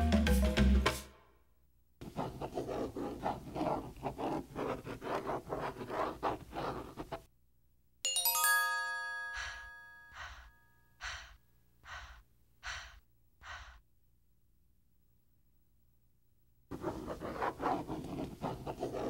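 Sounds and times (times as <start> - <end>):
pencil scratching on paper: 2.0 - 7.3, 16.7 - 19.0.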